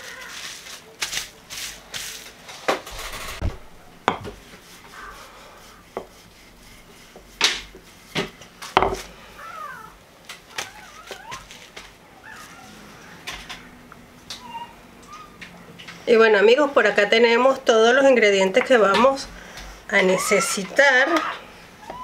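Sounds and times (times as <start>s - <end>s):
plastic bag rustling: 0.0s - 6.9s, 7.7s - 13.2s.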